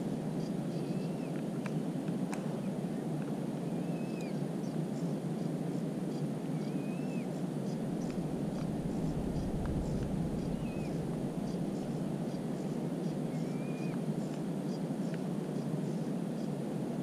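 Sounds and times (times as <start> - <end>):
low rushing background noise: 0.0 - 17.0
faint bird whistles: 0.4 - 1.8, 3.6 - 5.1, 6.1 - 8.2, 8.9 - 14.0
faint ticks: 1.3 - 2.5, 7.7 - 8.8.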